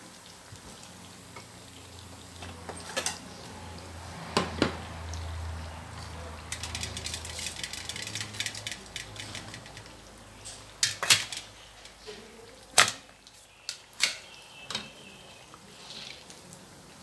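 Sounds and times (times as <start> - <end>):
oil sizzling and crackling: 0.0 - 17.0
sharp clicks and scrapes: 6.5 - 11.9.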